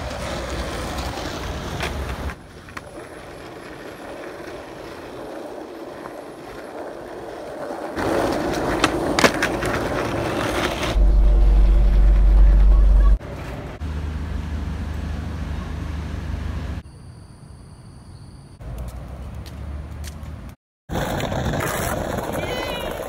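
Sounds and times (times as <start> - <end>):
skateboard clicks: 0.0 - 10.9
skateboard wheels rolling on pavement: 0.0 - 16.8, 18.6 - 23.0
loud low rumble: 10.9 - 13.2.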